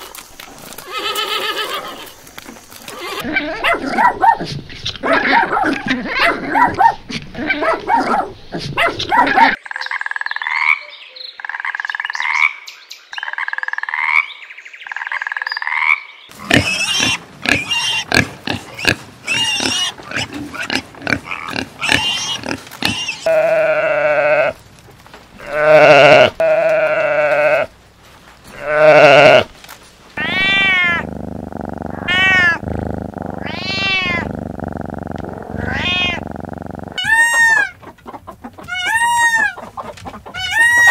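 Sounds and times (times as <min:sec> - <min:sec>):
dog barking: 0:03.3 - 0:09.6
pig grunting: 0:16.3 - 0:24.5, 0:30.2 - 0:37.7
cat meowing: 0:30.2 - 0:31.1, 0:31.9 - 0:32.6, 0:33.4 - 0:34.3, 0:35.5 - 0:36.3
short rising animal calls: 0:30.2 - 0:37.6.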